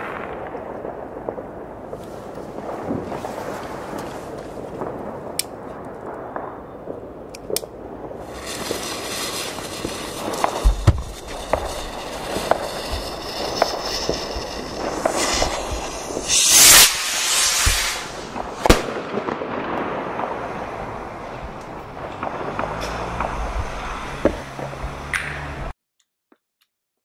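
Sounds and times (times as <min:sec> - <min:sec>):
fireworks cracking and banging: 0:00.0 - 0:25.7
firework hissing rush: 0:08.2 - 0:25.1.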